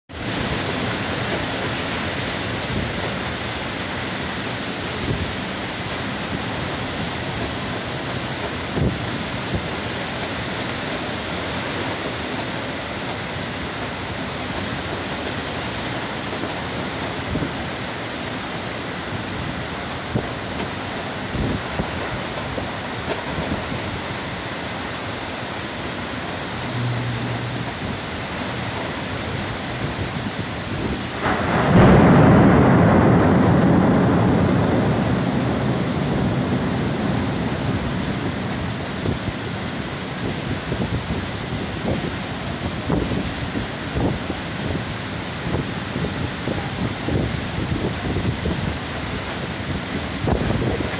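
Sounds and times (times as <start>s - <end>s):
heavy rain hissing: 0.1s - 50.9s
thunder clap rumbling: 29.8s - 50.9s.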